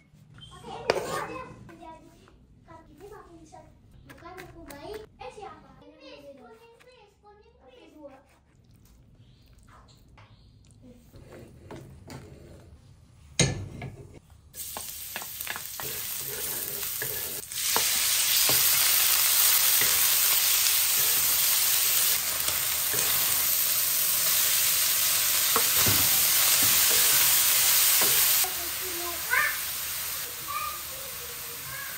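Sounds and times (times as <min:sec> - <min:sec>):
chicken sizzling in oil: 0:14.6 - 0:31.9.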